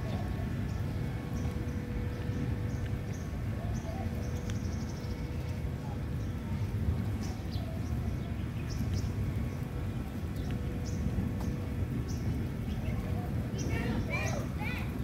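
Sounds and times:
birds chirping: 0.0 - 15.0
steady low rumble: 0.0 - 15.0.

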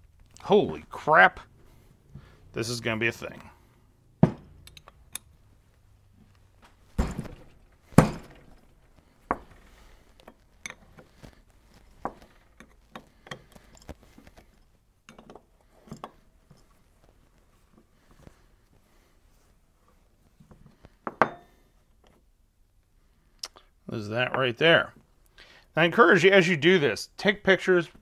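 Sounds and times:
small metal clicks and taps: 4.6 - 5.3, 15.1 - 16.2.

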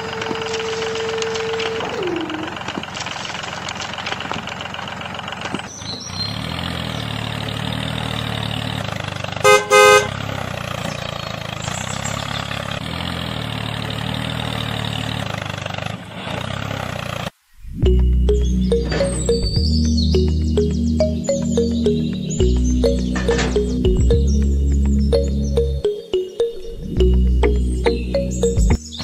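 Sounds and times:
tractor engine running: 0.0 - 29.0
horn honks: 9.4 - 10.2.

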